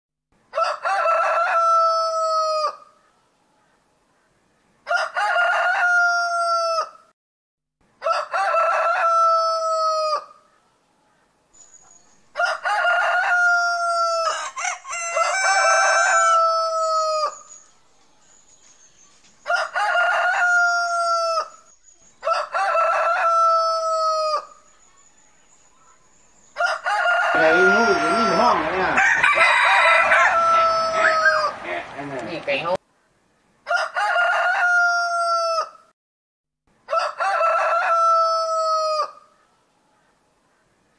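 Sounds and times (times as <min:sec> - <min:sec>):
roosters crowing: 0:00.5 - 0:02.9, 0:04.8 - 0:07.1, 0:08.0 - 0:10.4, 0:12.3 - 0:17.6, 0:19.4 - 0:24.7, 0:26.6 - 0:32.0, 0:33.6 - 0:35.9, 0:36.8 - 0:39.3.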